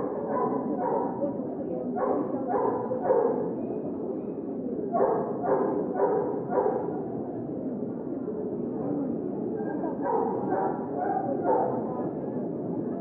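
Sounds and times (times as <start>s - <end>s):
crowded hall noise: 0.0s - 13.0s
dog barking: 0.2s - 1.2s, 2.0s - 3.4s, 5.0s - 6.9s, 10.0s - 11.8s.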